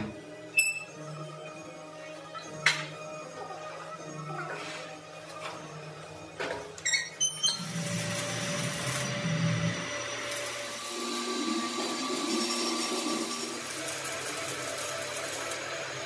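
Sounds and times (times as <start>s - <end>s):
welding arc crackling hiss: 7.6s - 16.0s.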